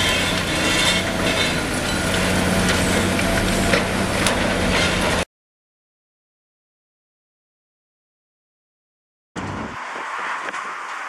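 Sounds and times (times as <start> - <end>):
excavator diesel engine running: 0.0 - 5.2.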